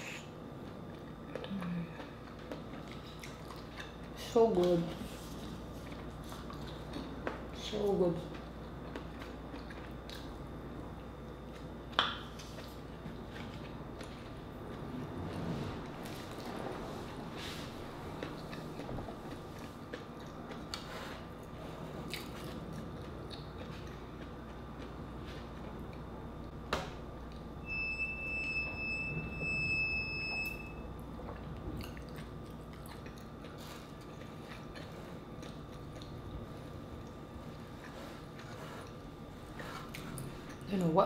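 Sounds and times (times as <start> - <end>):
chewing and mouth sounds: 0.0 - 7.6, 8.2 - 14.9, 18.1 - 26.6, 31.0 - 41.0.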